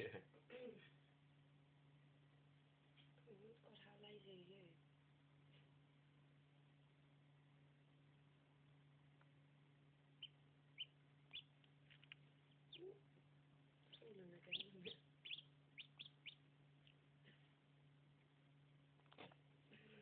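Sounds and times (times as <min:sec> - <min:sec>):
low hum: 0:00.9 - 0:20.0
chicks peeping: 0:07.6 - 0:19.5.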